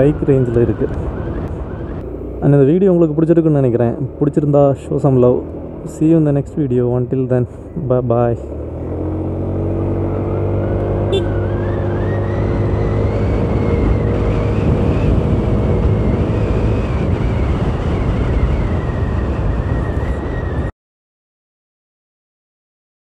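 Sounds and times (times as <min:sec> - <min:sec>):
wind and road noise: 0:00.0 - 0:20.7
scooter engine running: 0:08.5 - 0:17.1.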